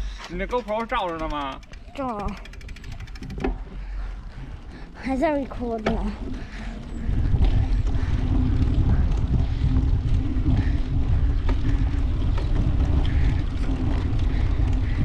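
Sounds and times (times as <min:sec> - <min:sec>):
bicycle rolling noise: 0:00.0 - 0:15.0
wind rushing over microphone: 0:06.0 - 0:15.0.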